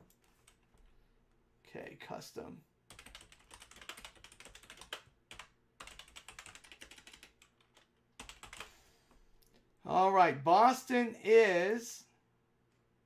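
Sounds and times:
faint typing on keyboard: 0.0 - 1.0, 2.9 - 9.5.

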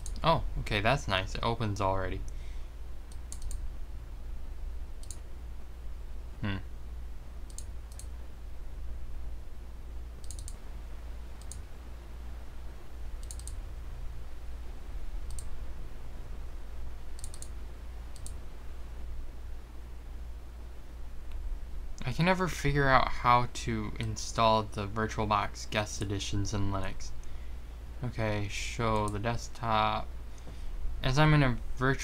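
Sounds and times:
computer mouse clicking: 0.0 - 0.3, 3.1 - 3.6, 5.0 - 5.2, 7.5 - 8.1, 10.2 - 10.6, 11.4 - 11.6, 13.2 - 13.6, 15.2 - 15.5, 17.2 - 18.4
low steady hum: 0.0 - 32.0.

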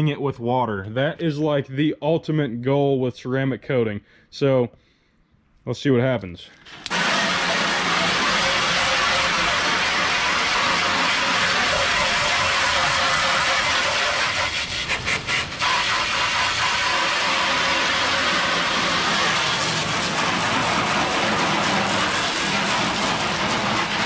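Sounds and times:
hose spray nozzle hissing: 6.6 - 24.0.

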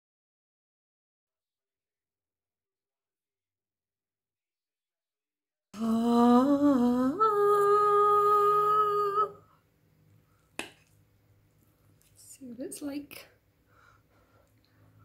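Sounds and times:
woman humming: 5.8 - 9.5.

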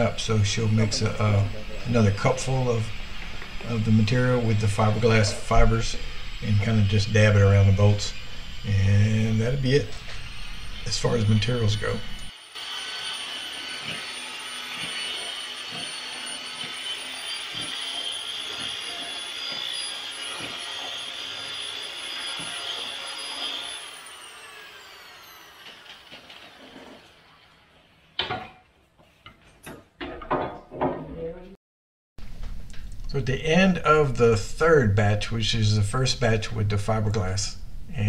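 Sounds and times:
electric drill mixing: 0.0 - 27.7.

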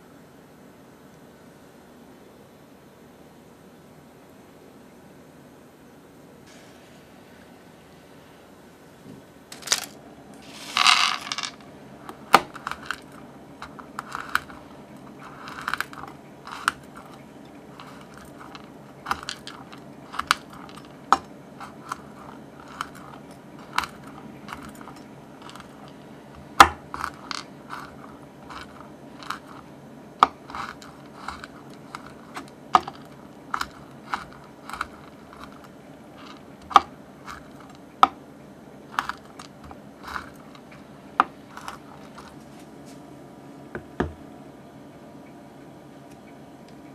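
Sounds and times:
nuts crunching: 9.5 - 38.2, 38.8 - 42.6
rustling scrape: 9.6 - 37.8, 38.9 - 43.0
knife chopping on wooden board: 26.6 - 27.1.

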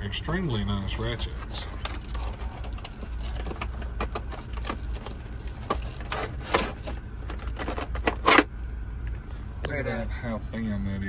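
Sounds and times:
plastic packaging clicking and crackling: 1.4 - 8.5.

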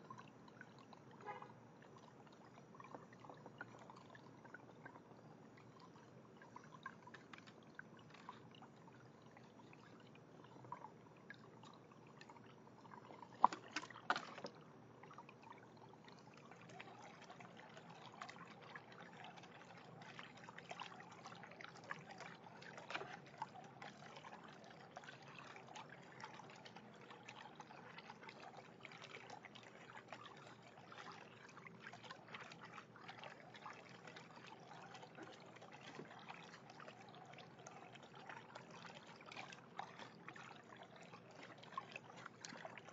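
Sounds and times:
fountain water trickling: 0.0 - 42.9
small splashes and ticks: 0.0 - 42.9
sharp knocks and splashes: 13.1 - 14.6.

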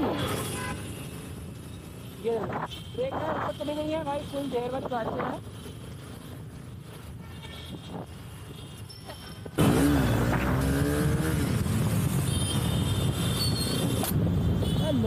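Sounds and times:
road noise: 0.0 - 15.0
motorcycle engine: 9.6 - 13.4.

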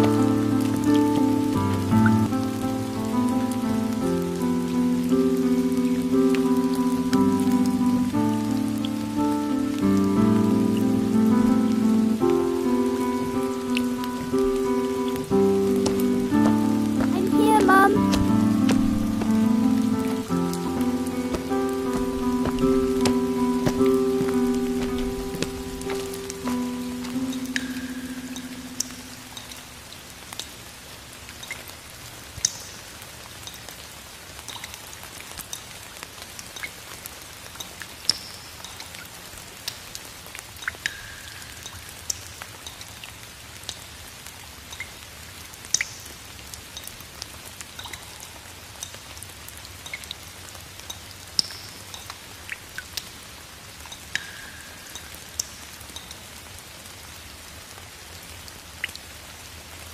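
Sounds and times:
light rain: 0.0 - 59.9
drops plinking in water: 53.9 - 56.2.

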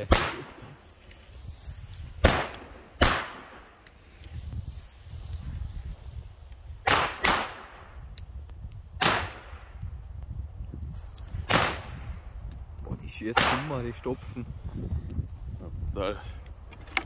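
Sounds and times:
firecracker bangs with echo: 0.0 - 0.6, 2.2 - 3.6, 6.8 - 7.8.

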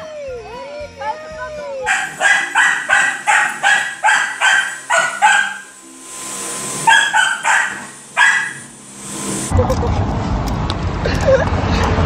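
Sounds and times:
dog barking: 1.9 - 5.7, 6.9 - 8.7.

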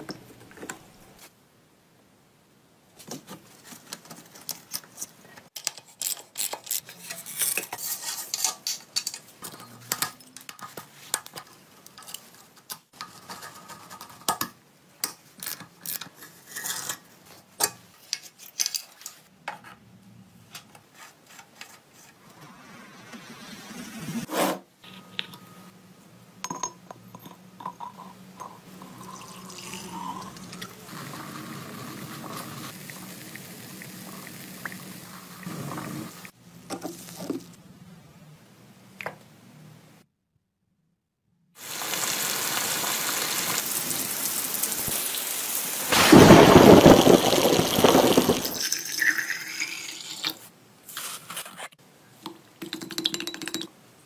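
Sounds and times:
liquid fizzing in glass jar: 27.6 - 30.8, 46.6 - 50.4.

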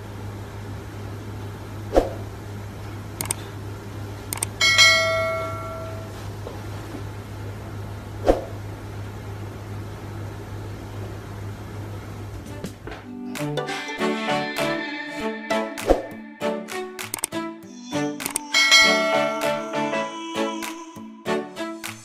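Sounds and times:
bell-like ring: 4.6 - 6.1, 18.5 - 19.8.

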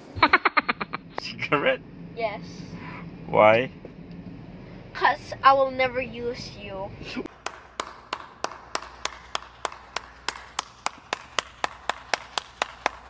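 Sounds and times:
person clapping: 7.3 - 13.0.

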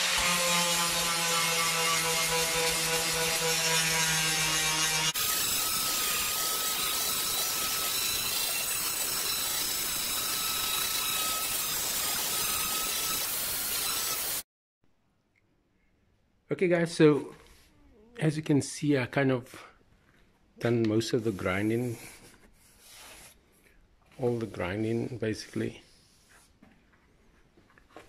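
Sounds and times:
angle grinder grinding metal: 0.0 - 14.4.

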